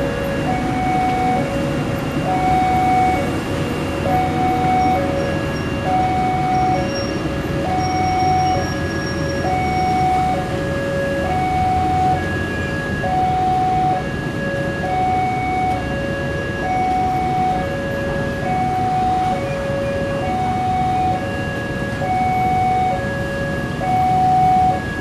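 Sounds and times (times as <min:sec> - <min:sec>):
train rumble: 0:00.0 - 0:13.0.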